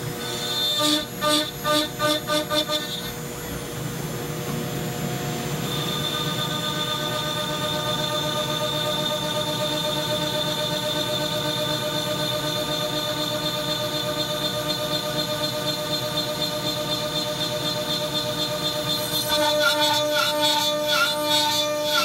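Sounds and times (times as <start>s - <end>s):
router spindle whine: 0.0s - 22.0s
high whistle: 5.6s - 11.2s.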